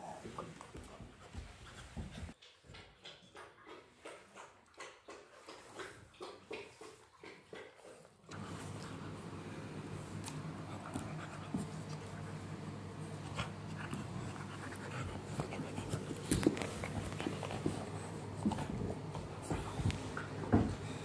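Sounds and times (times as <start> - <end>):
puppies panting: 10.4 - 21.0.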